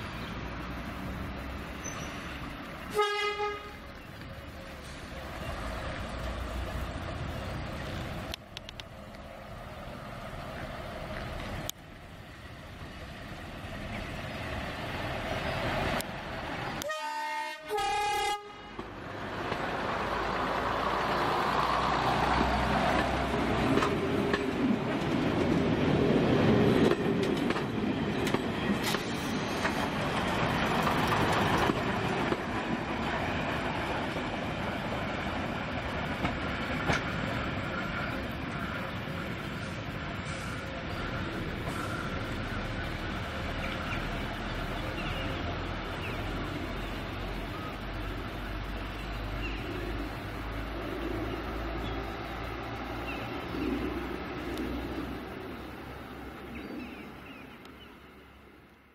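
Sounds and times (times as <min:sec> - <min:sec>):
diesel train engine running: 0:00.0 - 0:56.6
train wheels on rails: 0:00.0 - 0:58.9
two-tone train horn: 0:02.9 - 0:03.9, 0:16.8 - 0:18.8.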